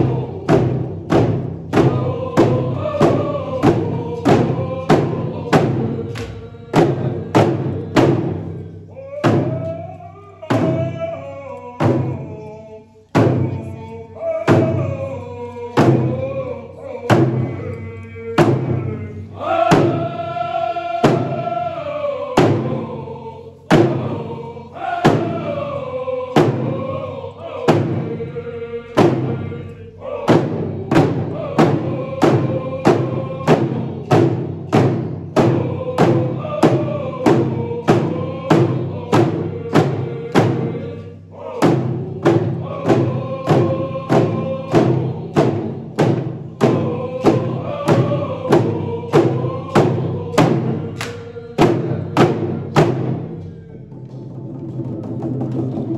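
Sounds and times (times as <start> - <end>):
group singing in unison: 0.0 - 55.9
hand drum beats: 30.3 - 40.8, 41.6 - 55.9.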